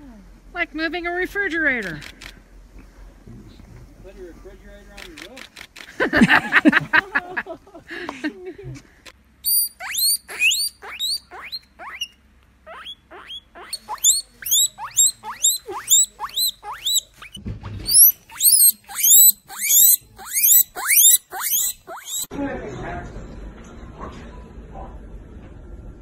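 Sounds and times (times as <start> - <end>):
guinea pig squealing: 9.4 - 22.3.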